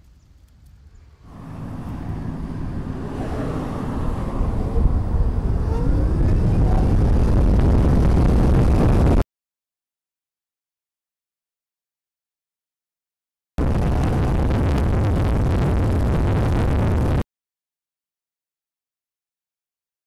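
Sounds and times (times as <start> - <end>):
wind buffeting on microphone: 0.8 - 9.2, 13.6 - 17.2
road noise: 1.2 - 9.2.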